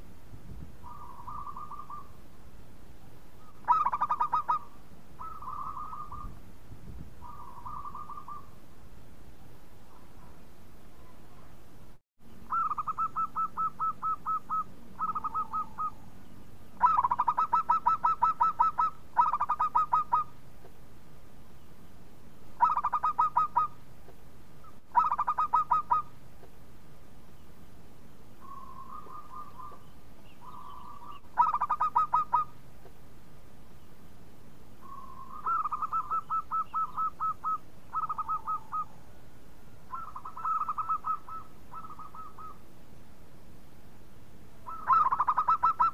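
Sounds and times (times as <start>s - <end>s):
dove cooing: 0.8s - 2.2s, 3.4s - 6.4s, 7.2s - 8.6s, 12.5s - 16.0s, 16.8s - 20.3s, 22.6s - 23.8s, 24.6s - 26.1s, 28.4s - 32.6s, 34.8s - 39.0s, 39.9s - 42.6s, 44.6s - 45.9s.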